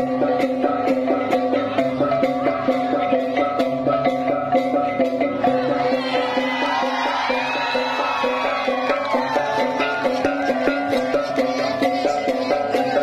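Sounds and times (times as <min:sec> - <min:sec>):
people shouting together: 0:05.8 - 0:13.0.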